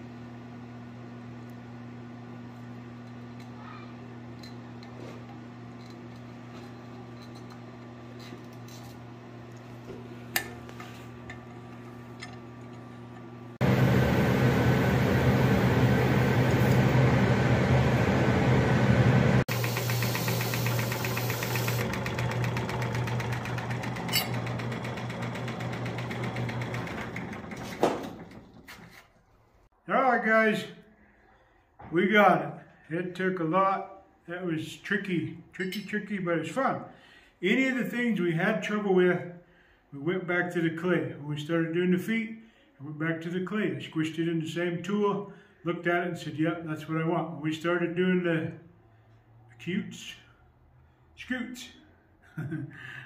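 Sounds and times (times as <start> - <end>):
electric machine motor humming: 0.2 - 28.6
loud rushing machine noise: 13.6 - 28.3.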